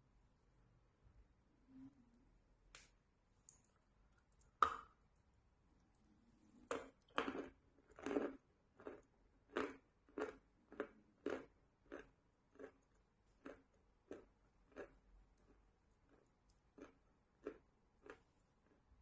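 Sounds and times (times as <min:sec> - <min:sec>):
crunchy chewing: 0:05.8 - 0:18.9.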